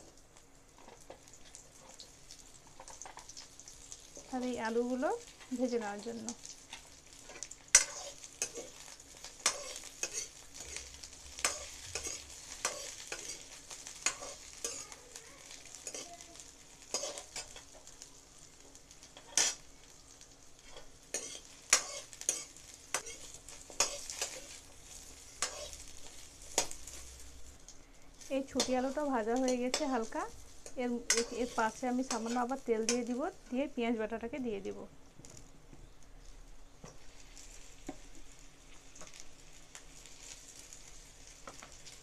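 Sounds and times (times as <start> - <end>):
food sizzling in hot oil: 0.0 - 42.0
metal spatula scraping a pan: 7.3 - 8.8, 9.4 - 14.9, 16.8 - 17.7, 19.2 - 19.6, 20.6 - 24.6, 25.4 - 25.9, 29.4 - 33.2.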